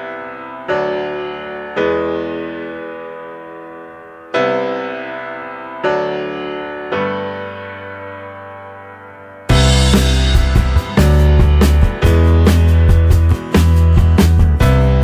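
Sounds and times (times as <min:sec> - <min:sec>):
slow piano chords: 0:00.0 - 0:15.0.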